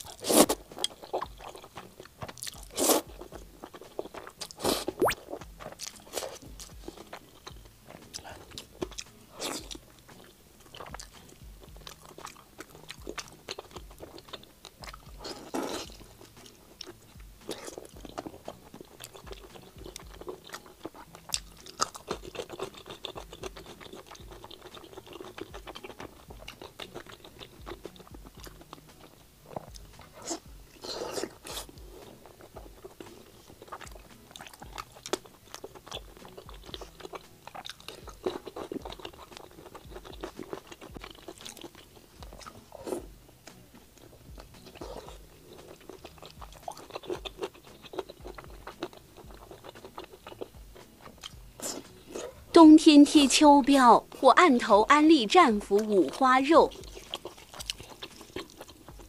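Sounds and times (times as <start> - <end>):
chewing and mouth smacks: 0.0 - 52.5, 55.7 - 59.0.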